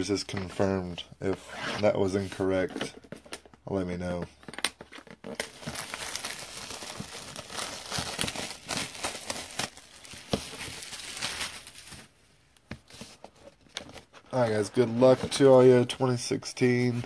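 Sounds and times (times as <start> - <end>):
plastic shrink wrap crinkling: 5.0 - 12.2.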